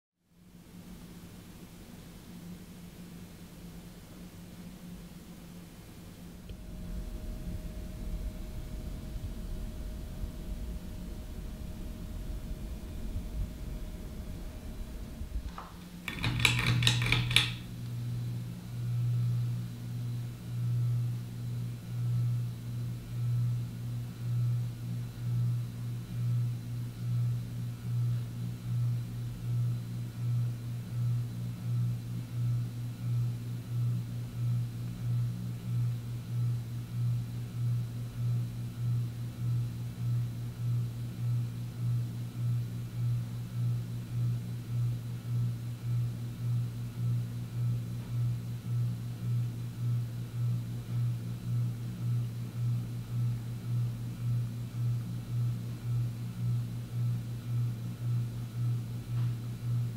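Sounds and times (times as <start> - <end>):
ceiling fan motor humming: 0.4 - 59.9
pull-chain switch clicking: 16.1 - 17.6.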